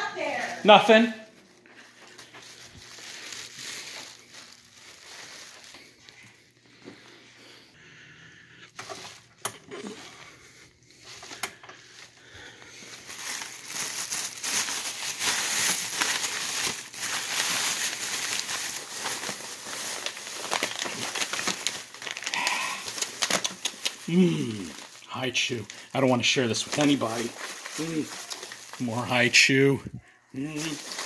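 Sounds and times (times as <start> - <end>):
candy wrappers crackling: 0.0 - 6.3, 11.0 - 29.8, 30.4 - 31.0
paper bag rustling: 1.5 - 6.2, 12.7 - 29.8, 30.4 - 31.0.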